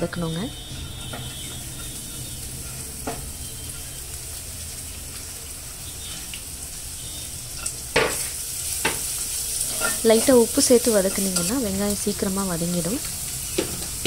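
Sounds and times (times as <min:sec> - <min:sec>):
onions sizzling in oil: 0:00.0 - 0:14.0.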